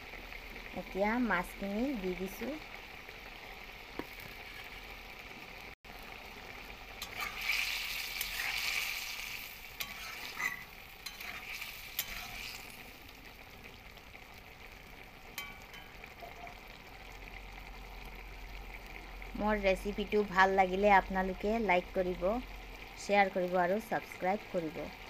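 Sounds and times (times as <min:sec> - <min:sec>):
curry sizzling in a pan: 0:00.0 - 0:25.0
metal spatula scraping a pan: 0:04.0 - 0:04.9, 0:07.0 - 0:12.8.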